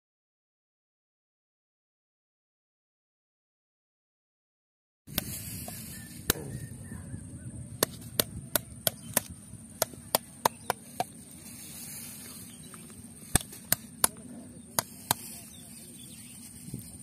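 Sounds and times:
plastic bottle knocking snail shell: 7.8 - 11.1.

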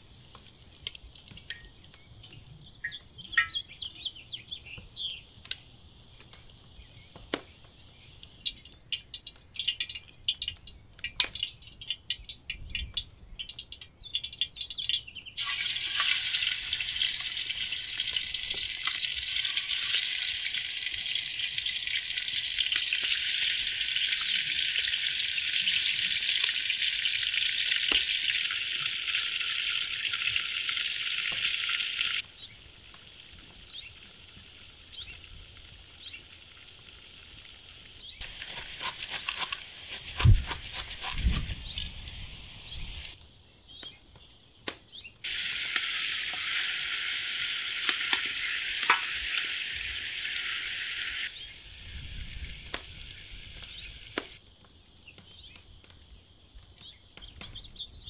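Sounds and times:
oil crackling in a pot: 0.0 - 58.0
meat sizzling in hot oil: 15.3 - 43.2, 45.2 - 54.4.

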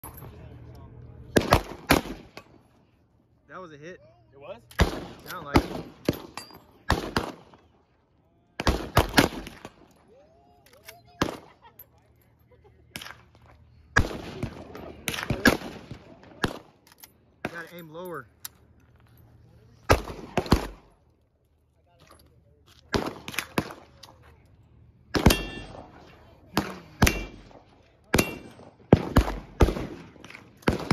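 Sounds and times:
rifle shots: 1.3 - 2.6, 4.7 - 7.7, 8.6 - 9.9, 14.0 - 16.8, 19.9 - 21.0, 22.9 - 24.0, 25.1 - 30.9
metallic ring: 25.3 - 25.9.

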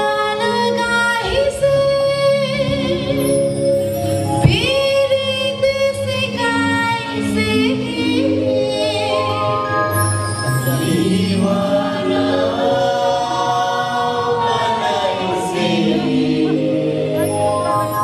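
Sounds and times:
mixed choir singing folk song: 7.7 - 18.0.

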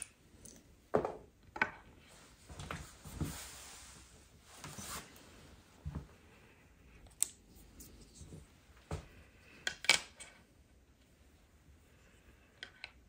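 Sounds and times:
small parts clicking and knocking: 0.0 - 0.7, 9.5 - 10.4, 12.5 - 13.0.

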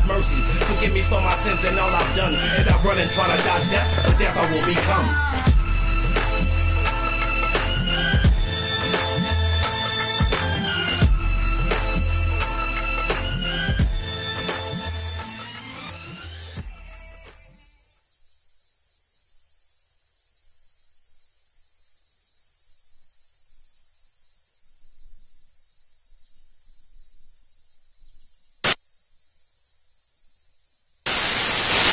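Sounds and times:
music: 0.0 - 17.8
crickets chirring: 16.6 - 31.9
short loud noise burst: 31.1 - 31.9.

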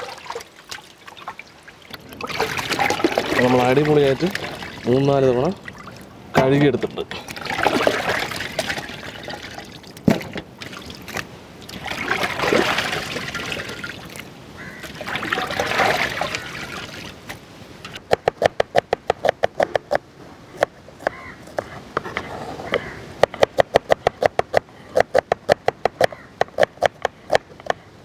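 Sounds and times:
water sloshing in a steel pot: 0.0 - 6.1, 7.1 - 14.2, 14.8 - 17.2.

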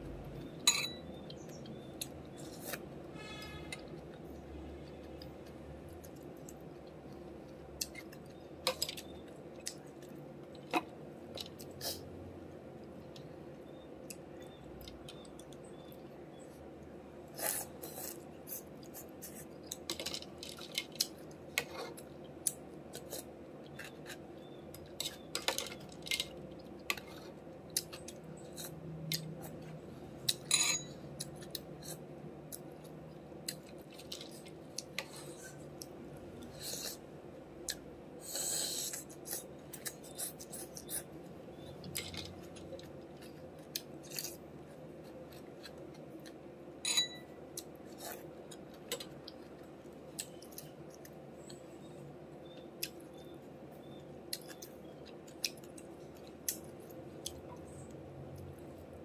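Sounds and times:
spoon clinking on ceramic bowl: 0.7 - 1.1, 30.5 - 30.9, 46.8 - 47.3
chewing and mouth sounds: 53.9 - 58.7.

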